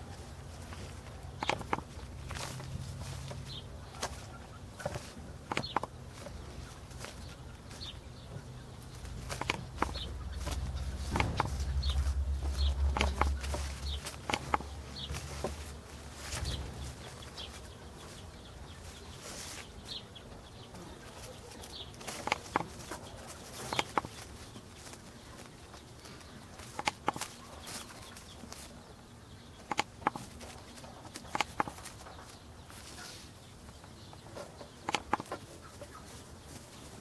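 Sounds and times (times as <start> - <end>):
low hum: 0.0 - 21.0.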